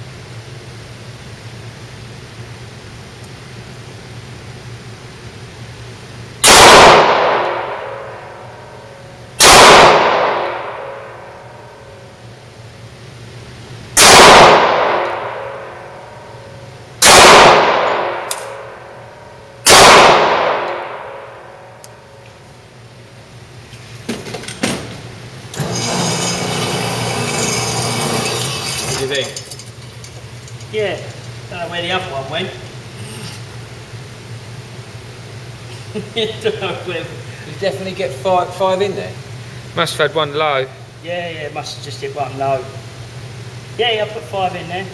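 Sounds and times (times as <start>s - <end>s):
pistol shots with echo: 6.4s - 8.4s, 9.4s - 11.2s, 14.0s - 16.0s, 17.0s - 18.9s, 19.6s - 21.6s.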